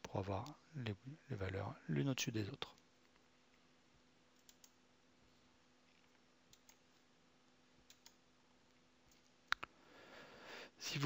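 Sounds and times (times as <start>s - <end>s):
faint steady hum: 0.0s - 11.0s
computer mouse clicks: 4.4s - 4.8s, 6.5s - 6.8s, 7.8s - 8.2s.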